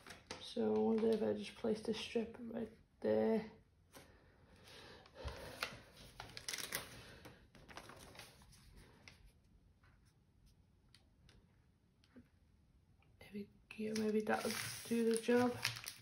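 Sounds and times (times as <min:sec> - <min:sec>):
paper rustling and crinkling: 0:00.0 - 0:01.6, 0:05.2 - 0:10.0, 0:13.9 - 0:16.0.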